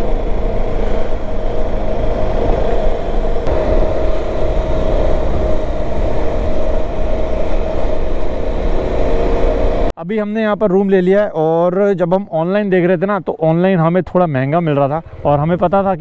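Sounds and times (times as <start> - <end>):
motorcycle engine running: 0.0 - 9.9
wind and road rumble: 0.0 - 10.0, 13.9 - 16.0.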